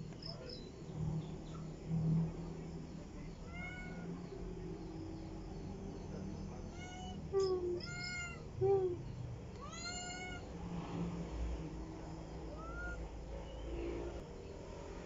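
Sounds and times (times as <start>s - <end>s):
cat meowing: 3.4s - 4.1s, 6.7s - 9.0s, 9.6s - 10.5s, 12.5s - 13.0s.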